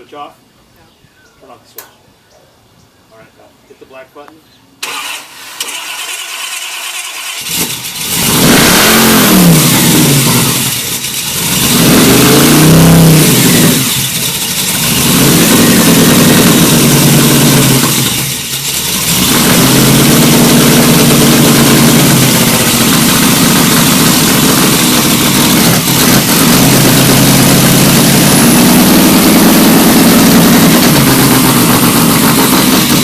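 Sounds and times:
engine cranking: 4.8s - 33.0s
engine running loud and uneven: 7.5s - 33.0s.

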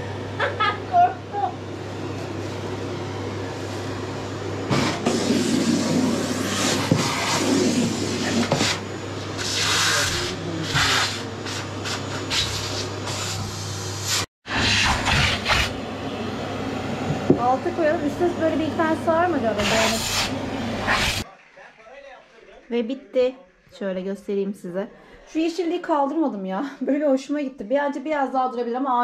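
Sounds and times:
vacuum cleaner sucking and scraping: 3.6s - 21.3s.

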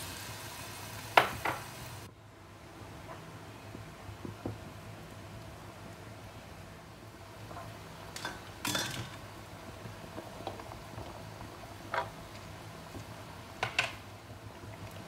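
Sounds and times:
vegetables clattering into wok: 8.2s - 9.2s.

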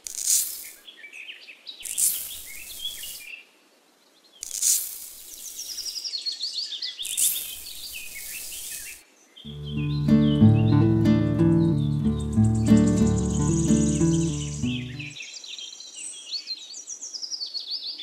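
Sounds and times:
sand pouring onto plastic tray: 0.0s - 0.8s, 1.8s - 3.2s, 4.4s - 5.6s, 7.0s - 9.0s
birds chirping: 9.5s - 15.2s.

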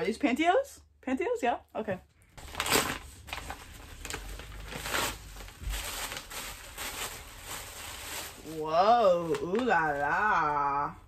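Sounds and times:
envelope crinkling and tearing: 2.4s - 10.2s.

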